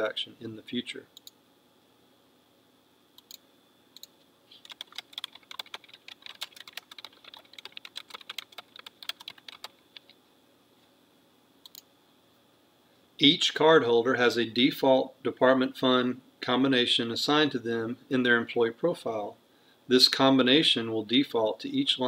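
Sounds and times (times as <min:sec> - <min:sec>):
typing on computer keyboard: 0:04.6 - 0:10.2.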